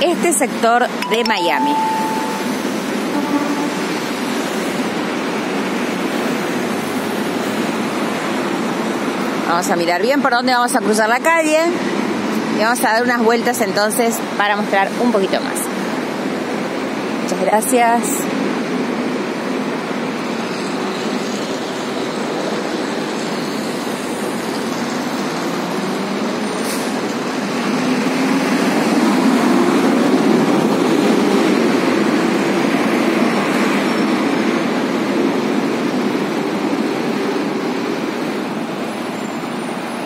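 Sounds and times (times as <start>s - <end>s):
cars passing: 18.0s - 40.0s.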